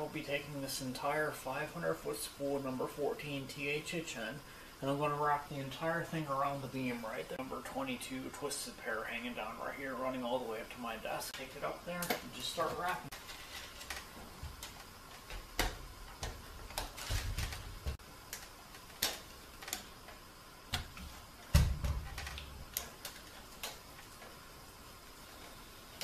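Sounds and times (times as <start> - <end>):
dull thuds: 20.7 - 22.7.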